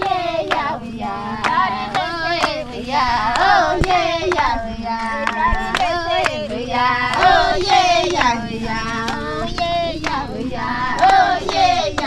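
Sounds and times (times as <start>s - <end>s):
sharp hand claps: 0.0s - 0.8s, 1.4s - 2.7s, 5.2s - 10.3s, 10.9s - 12.0s
women singing together: 0.0s - 12.0s.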